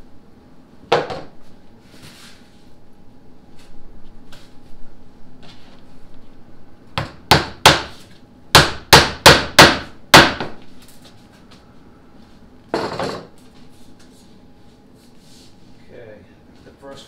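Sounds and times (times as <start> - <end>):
hammer striking nail into plywood: 8.6 - 10.5.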